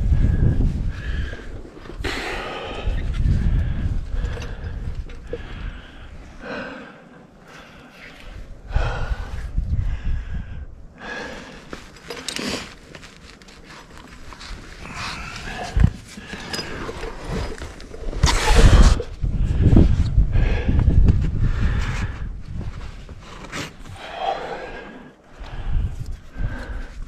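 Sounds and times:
wind rumbling on microphone: 0.0s - 6.9s, 7.7s - 12.0s, 14.2s - 27.0s
person breathing hard: 0.0s - 12.5s, 14.5s - 22.4s, 23.8s - 27.0s
climbing gear clinking: 11.6s - 18.8s.

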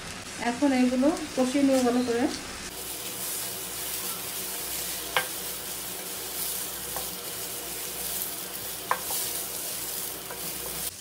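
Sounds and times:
rice sizzling in oil: 0.0s - 11.0s
utensil knocking against pan: 8.8s - 9.2s.

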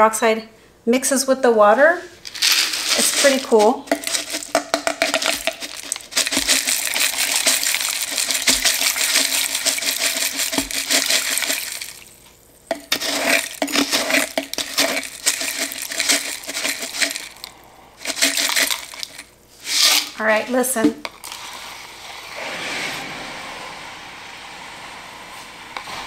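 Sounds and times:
flakes pouring into plastic cup: 2.2s - 20.2s.

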